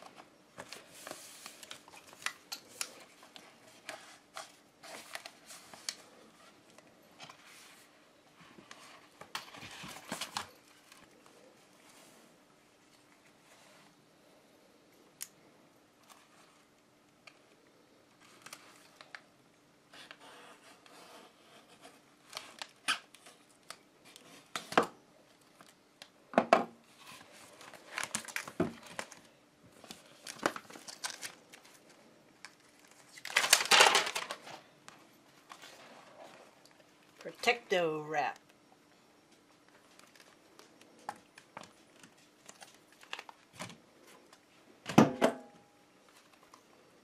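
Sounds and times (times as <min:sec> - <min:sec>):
paper backing crinkling: 0:00.0 - 0:13.9, 0:16.0 - 0:19.3, 0:26.9 - 0:37.7, 0:39.4 - 0:44.5
tape tearing rustle: 0:27.1 - 0:34.6.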